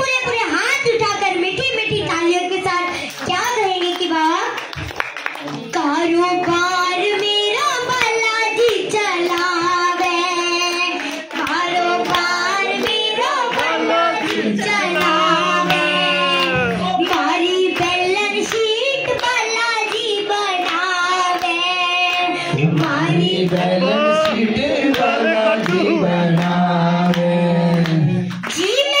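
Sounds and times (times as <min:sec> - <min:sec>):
girl singing into a microphone: 0:00.0 - 0:03.5, 0:05.8 - 0:15.0, 0:16.7 - 0:23.5, 0:28.5 - 0:29.0
hands clapping along: 0:02.9 - 0:29.0.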